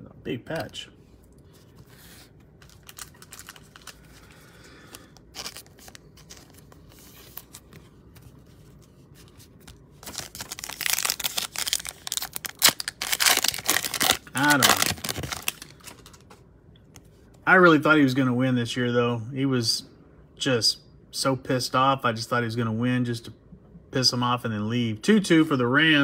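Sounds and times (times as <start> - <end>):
foil pack crinkling and tearing: 2.6 - 7.8, 9.6 - 16.2.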